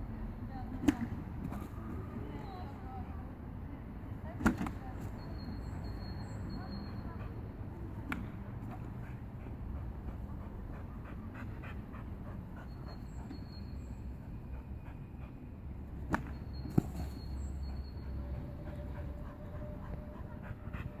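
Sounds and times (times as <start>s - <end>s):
low outdoor rumble: 6.9s - 21.0s.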